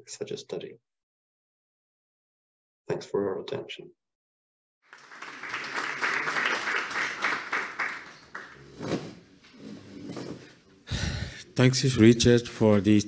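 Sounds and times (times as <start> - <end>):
audience applause: 4.9 - 8.8.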